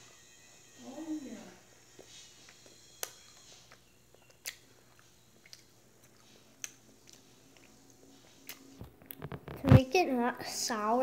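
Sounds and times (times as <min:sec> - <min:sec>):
faint candy chewing: 0:01.8 - 0:09.6.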